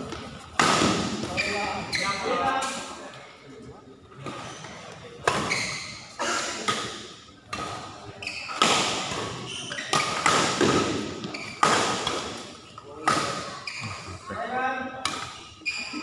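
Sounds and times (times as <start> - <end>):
rackets hitting shuttlecock: 0.1 - 1.4, 6.6 - 13.5.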